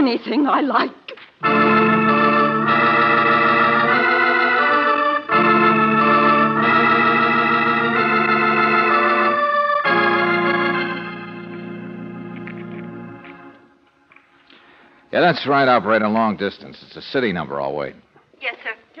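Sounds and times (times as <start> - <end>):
organ chords: 1.4 - 16.4.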